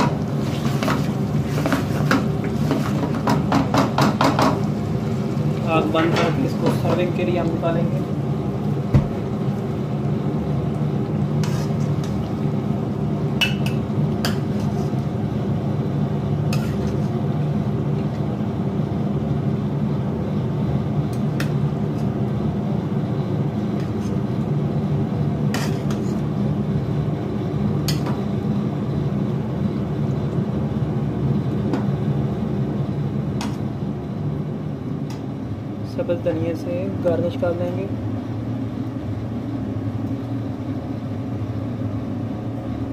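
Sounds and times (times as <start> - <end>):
metal spoon scraping a pan: 11.4 - 12.2, 16.5 - 17.2, 25.5 - 26.2.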